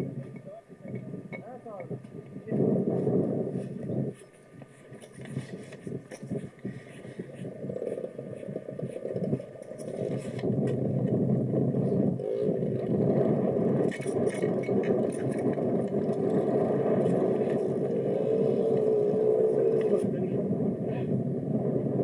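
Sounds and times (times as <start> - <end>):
dirt bike engine running: 6.8 - 19.8.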